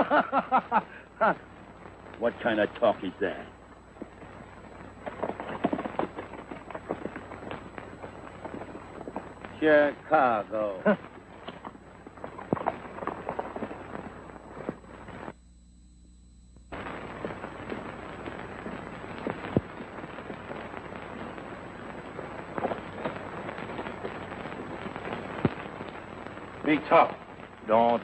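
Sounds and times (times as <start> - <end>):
low hum: 0.0 - 27.6
film soundtrack crackle and pops: 0.0 - 28.0.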